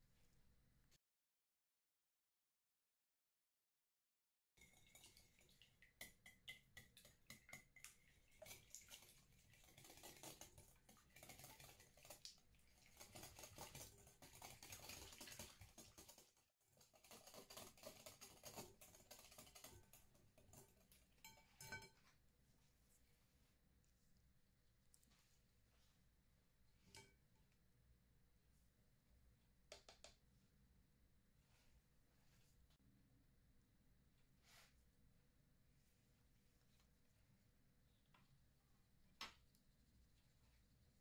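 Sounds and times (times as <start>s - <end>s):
liquid sloshing: 4.6s - 6.0s, 7.0s - 21.1s
whisk ticking against glass bowl: 4.6s - 16.2s, 16.8s - 22.0s.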